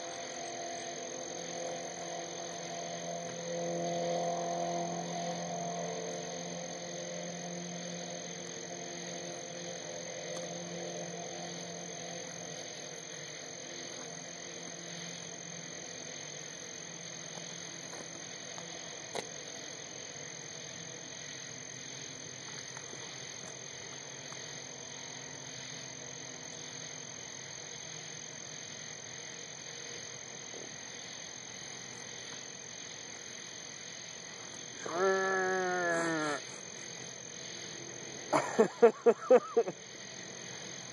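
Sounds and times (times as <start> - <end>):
night insects chirring: 0.0 - 40.9
toad trilling: 34.8 - 36.6.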